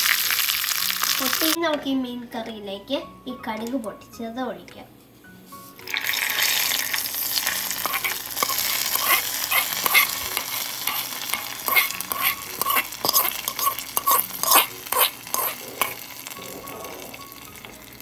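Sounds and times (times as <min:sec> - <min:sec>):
oil sizzling loudly: 0:00.0 - 0:01.6, 0:05.6 - 0:18.0.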